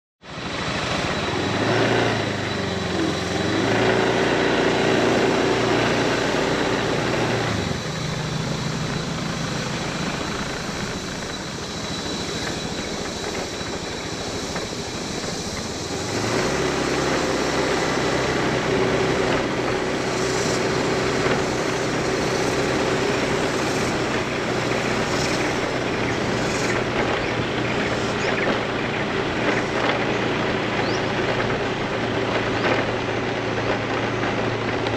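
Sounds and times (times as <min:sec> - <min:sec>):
motorbike engine running: 0:00.3 - 0:34.9.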